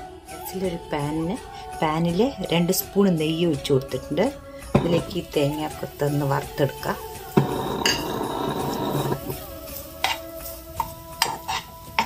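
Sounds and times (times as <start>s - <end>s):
background music: 0.0s - 12.0s
spoon stirring in a pan: 4.7s - 12.0s.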